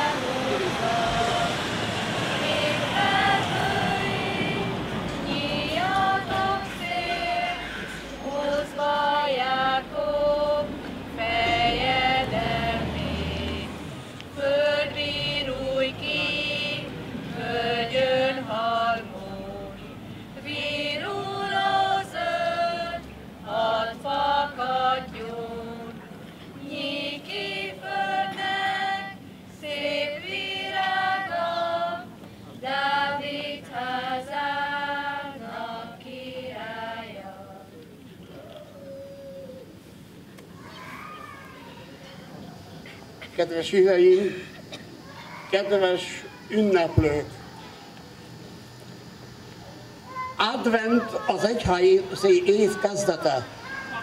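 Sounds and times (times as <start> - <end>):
children's choir singing: 0.0 - 37.8, 50.4 - 54.0.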